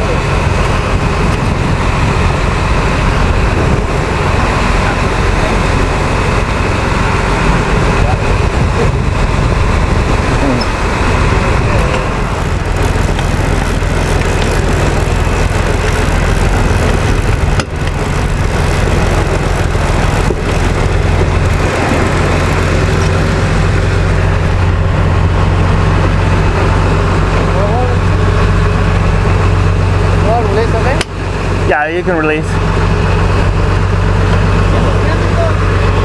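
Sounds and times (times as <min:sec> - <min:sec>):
boat engine droning: 0:00.0 - 0:36.0
churning wake water: 0:00.0 - 0:36.0
wind rushing: 0:00.5 - 0:27.1.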